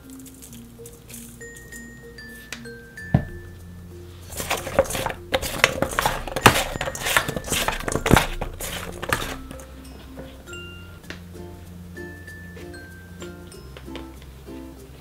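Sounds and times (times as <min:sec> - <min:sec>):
light background music: 0:00.0 - 0:15.0
vegetable slices tossed in metal bowl: 0:04.3 - 0:09.6.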